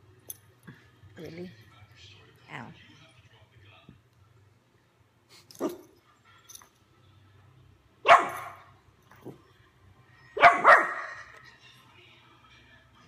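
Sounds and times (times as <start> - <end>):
dog barking: 8.0 - 8.7, 10.4 - 11.3.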